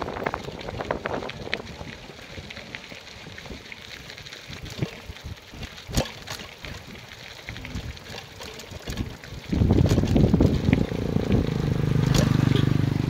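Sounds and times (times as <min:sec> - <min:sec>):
bicycle tyres crunching on gravel: 0:00.0 - 0:05.7.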